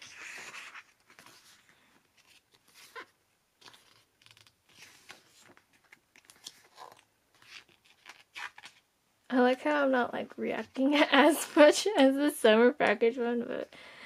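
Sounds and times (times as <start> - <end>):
book pages turning: 0.0 - 8.9.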